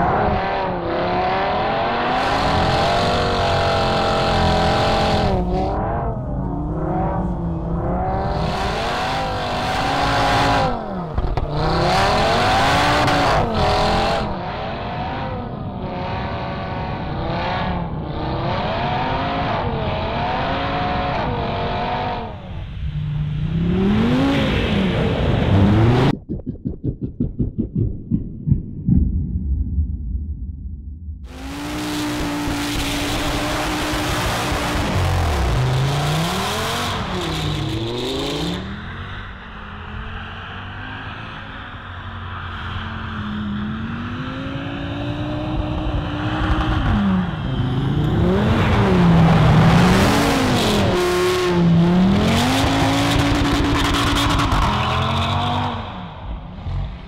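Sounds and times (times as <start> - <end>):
car engine revving: 0.0 - 38.9
rapid pulsing: 25.7 - 31.4.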